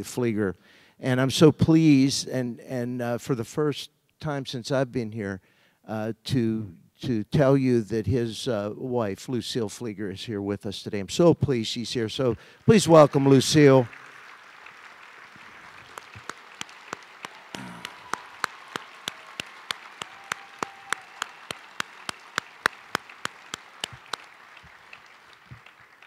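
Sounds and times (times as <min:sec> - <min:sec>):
audience applauding: 0:12.6 - 0:26.0
sharp close hand claps: 0:12.9 - 0:26.0.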